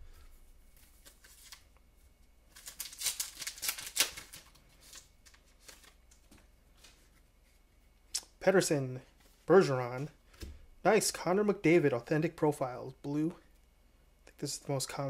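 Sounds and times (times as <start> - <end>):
card pack wrapper crinkling: 0.7 - 1.7, 2.5 - 7.0.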